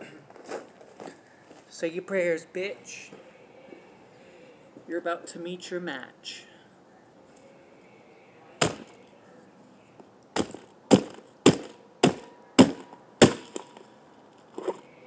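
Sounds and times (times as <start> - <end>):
brick smashing on a toy: 8.6 - 9.0, 10.4 - 13.9.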